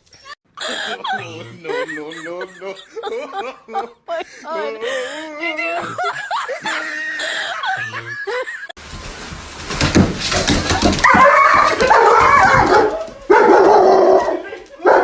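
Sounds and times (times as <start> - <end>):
high wavering laughter: 0.1 - 8.8
dog barking and whining: 11.0 - 15.0.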